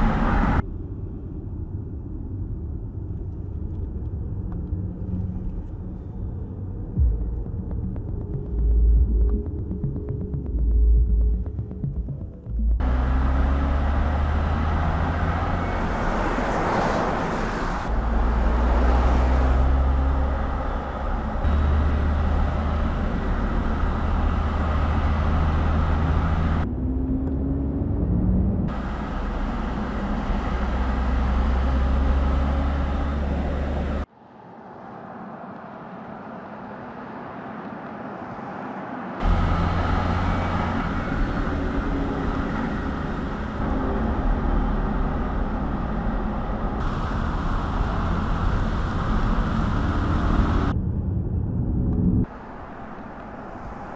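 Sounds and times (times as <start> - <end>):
tyre rumble and road hiss: 36.0 - 50.8, 52.2 - 53.9.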